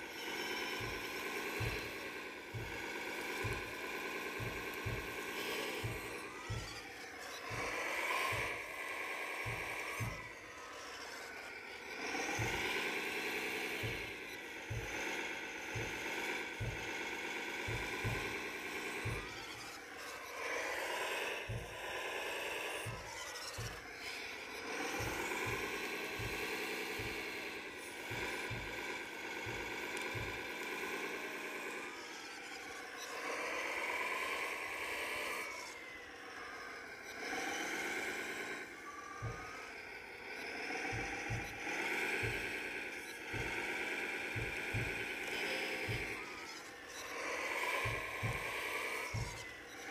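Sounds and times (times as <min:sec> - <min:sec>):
gearing knocking: 0:00.0 - 0:49.9
small electric motors whining: 0:00.0 - 0:49.9.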